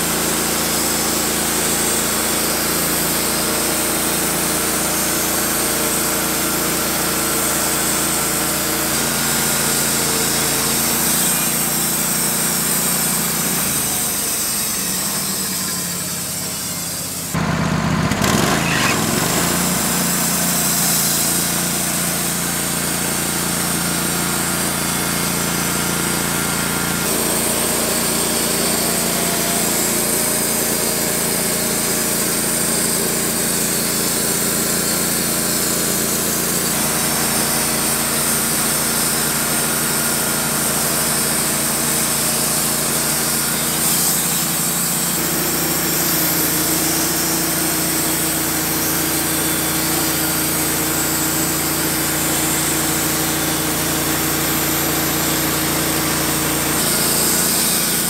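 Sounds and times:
bandsaw mill sawing log: 0.0 - 58.0
engine under load: 0.0 - 58.0.

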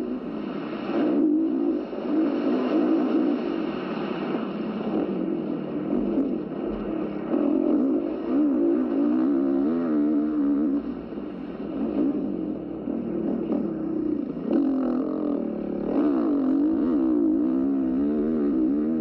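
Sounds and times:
dirt bike engine revving: 13.0 - 19.0.

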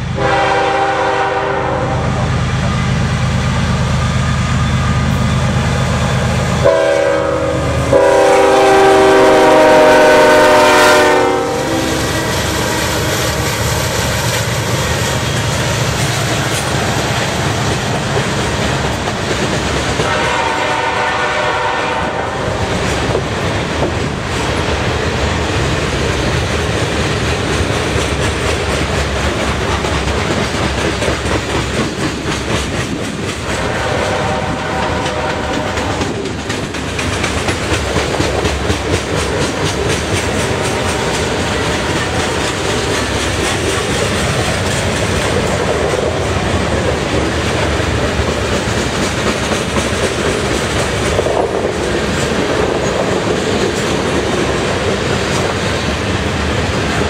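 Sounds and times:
train wheels clacking on rails: 0.0 - 57.0
distant locomotive horn: 0.1 - 2.4, 6.6 - 13.5, 20.0 - 22.8, 33.4 - 36.2.

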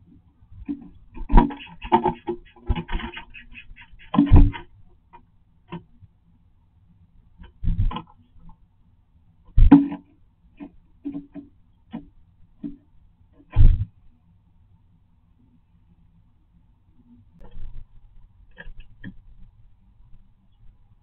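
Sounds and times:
bird tapping on wooden nest box: 0.6 - 6.0, 9.5 - 13.9.

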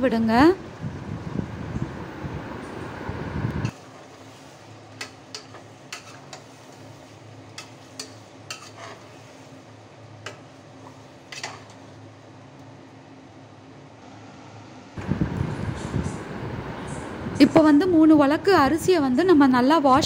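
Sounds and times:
steady low hum: 0.0 - 20.0
spoon scraping in pot: 5.0 - 9.6, 10.2 - 11.8.

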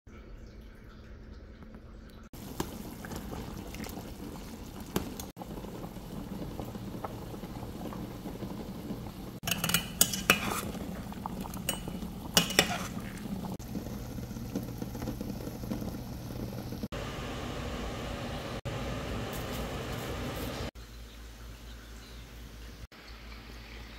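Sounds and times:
water boiling hard: 2.4 - 20.8
metal tongs clinking on pot: 9.4 - 13.3.

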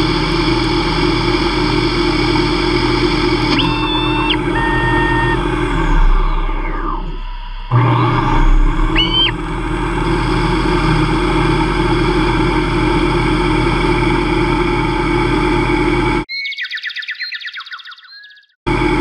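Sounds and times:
lathe spindle motor humming: 0.0 - 16.3, 18.7 - 19.0
brief rising chirps: 3.5 - 9.4.

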